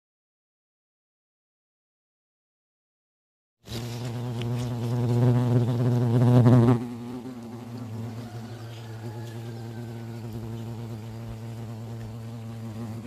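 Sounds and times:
hornets buzzing: 3.7 - 13.0.

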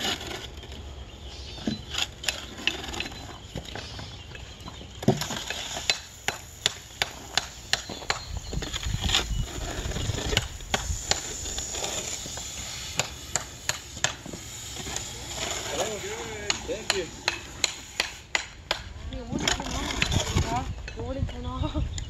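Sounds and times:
hoe scraping wet concrete: 0.0 - 4.2, 4.9 - 18.3, 19.2 - 20.7
low grinding scrape: 8.4 - 18.3.

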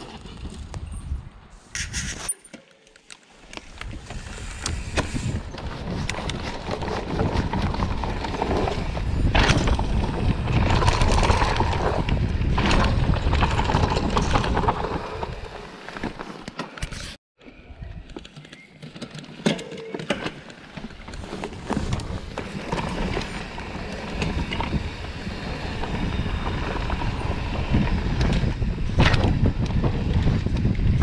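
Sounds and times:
bike tyres rumbling over dirt: 0.0 - 1.0, 3.5 - 17.1, 20.3 - 31.0
wind buffeting microphone: 0.0 - 2.2, 3.7 - 15.6, 20.9 - 31.0
bike frame and chain rattle: 3.8 - 17.1.

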